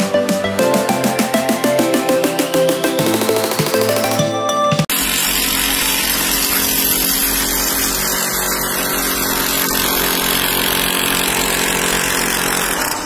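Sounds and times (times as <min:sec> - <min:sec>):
power tool running: 0:04.9 - 0:13.0.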